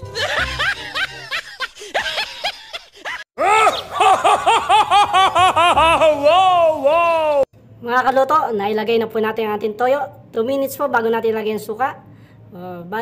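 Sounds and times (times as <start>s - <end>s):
comic laughter sound effect: 0.0s - 7.4s.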